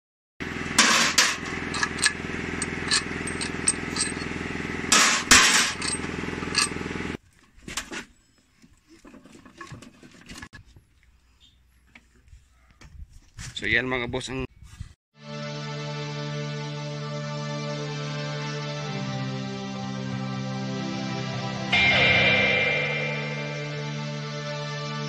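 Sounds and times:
steady machine hum: 0.4 - 7.2
impact wrench hammering: 0.7 - 4.3, 4.9 - 6.8
clanks of metal parts handled: 0.8 - 4.3, 4.9 - 6.8
metal clinks: 1.6 - 4.3, 5.3 - 6.8.

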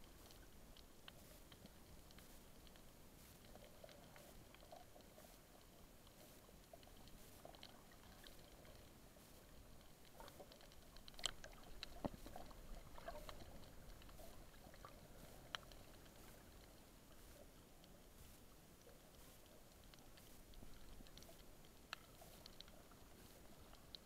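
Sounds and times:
underwater clicks and crackles: 0.0 - 24.0.

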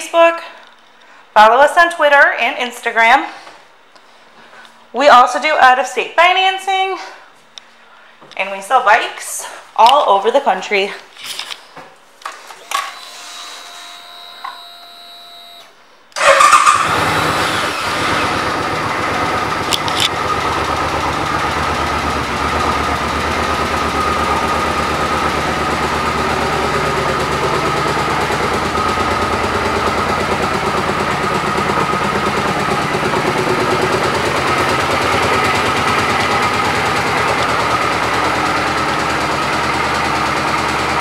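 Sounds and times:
motorcycle engine starting and idling: 14.0 - 41.0.

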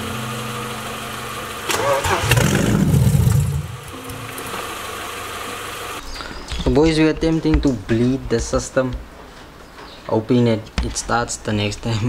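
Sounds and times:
car engine running: 0.0 - 6.0.

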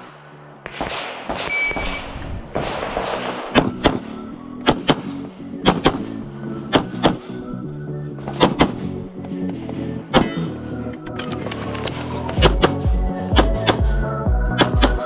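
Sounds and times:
pistol shots: 0.0 - 7.4, 8.3 - 8.9
background music: 0.0 - 15.0.

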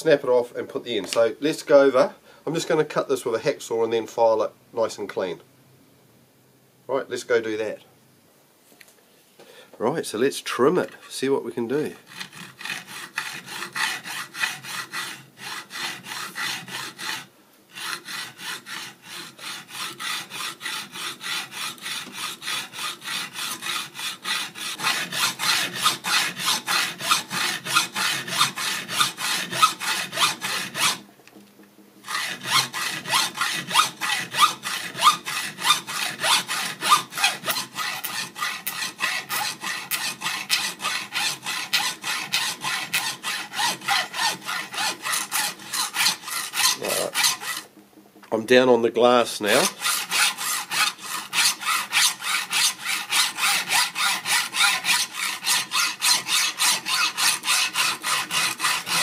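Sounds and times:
hacksaw cutting metal: 11.9 - 31.0, 32.0 - 47.7, 49.4 - 59.0.

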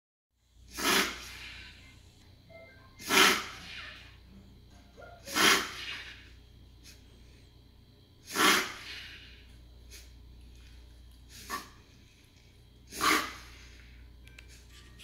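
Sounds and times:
dog sneezing snorts: 0.7 - 1.6, 3.0 - 4.1, 5.2 - 7.0, 8.2 - 9.3, 11.3 - 11.8, 12.9 - 13.6.

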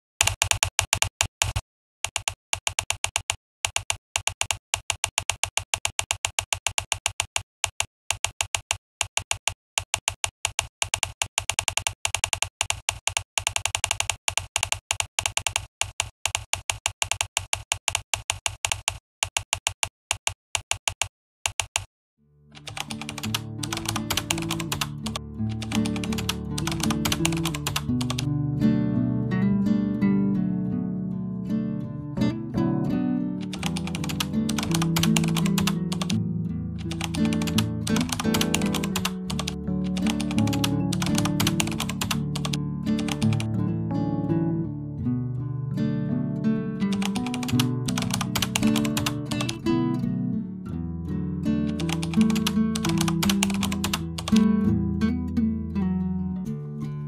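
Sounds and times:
keyboard typing clicks: 0.2 - 21.9, 22.6 - 28.3, 33.4 - 36.2, 36.8 - 43.5, 46.9 - 49.6, 51.7 - 54.5
music: 22.4 - 57.0.

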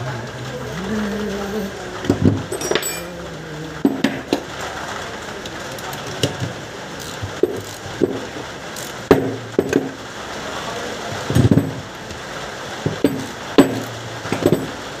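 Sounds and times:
spanner clinking on metal: 2.5 - 3.2.

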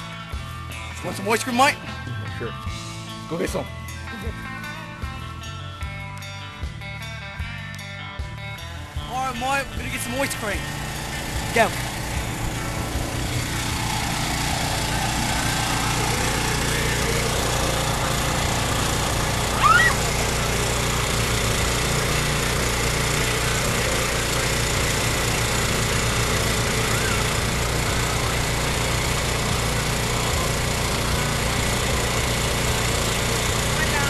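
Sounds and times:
truck engine drone: 0.0 - 34.0
high rising squeak: 19.5 - 20.1.

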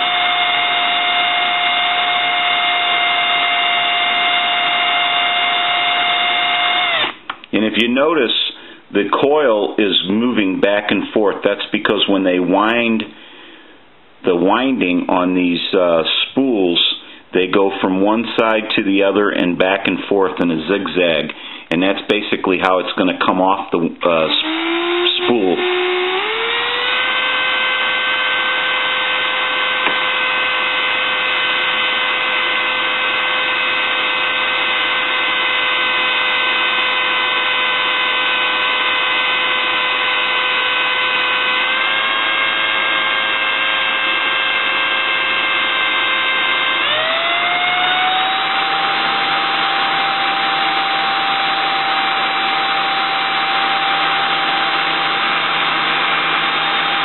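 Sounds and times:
small electric motor whining: 0.0 - 7.3, 24.3 - 57.0.

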